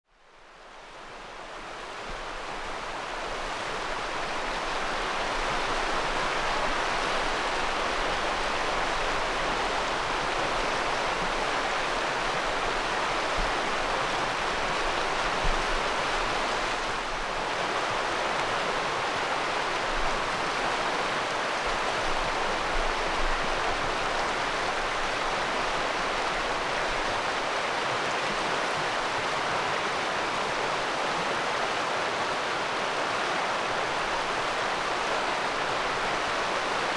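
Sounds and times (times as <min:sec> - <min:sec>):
river water flowing and rippling: 0:00.0 - 0:36.9.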